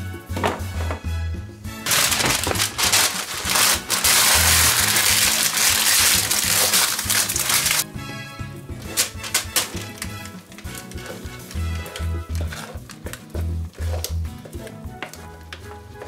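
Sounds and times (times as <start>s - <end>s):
background music: 0.0s - 16.0s
parchment paper crinkling: 1.8s - 7.8s, 8.9s - 14.2s.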